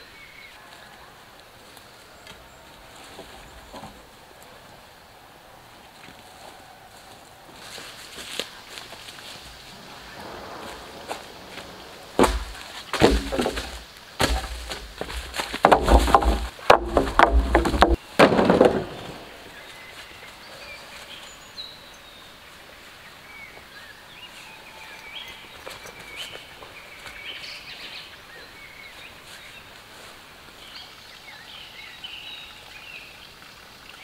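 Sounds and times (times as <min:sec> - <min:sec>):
wood knock: 0:12.2 - 0:19.0
small birds chirping: 0:18.9 - 0:34.0.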